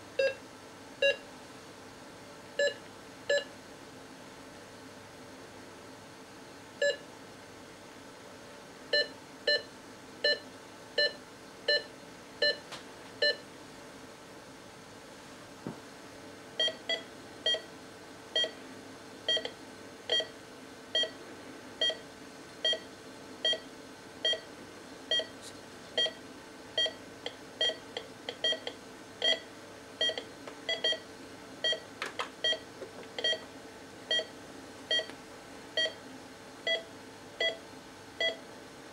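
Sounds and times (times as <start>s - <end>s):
patient monitor pulse beeps: 0.2s - 0.4s, 1.0s - 1.2s, 2.6s - 3.5s, 6.8s - 7.0s, 8.9s - 12.6s, 13.2s - 13.4s, 16.6s - 17.7s, 18.4s - 18.6s, 19.3s - 21.2s, 21.8s - 22.0s, 22.6s - 24.5s, 25.1s - 25.3s, 26.0s - 26.2s, 26.8s - 33.5s, 34.1s - 35.1s, 35.8s - 36.0s, 36.6s - 37.6s, 38.2s - 38.4s.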